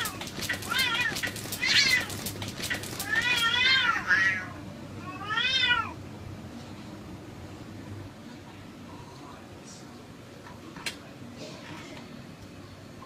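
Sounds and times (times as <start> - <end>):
cats scuffling: 0.0 - 3.8
cat yowls: 3.0 - 6.0.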